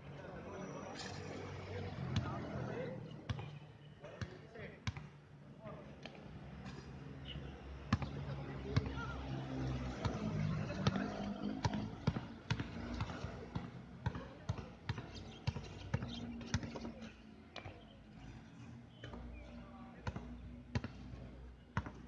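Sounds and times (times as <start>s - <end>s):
basketball bouncing on concrete: 3.3s - 3.5s, 4.2s - 5.1s, 7.9s - 8.2s, 11.6s - 16.9s, 20.0s - 21.1s, 21.8s - 22.0s.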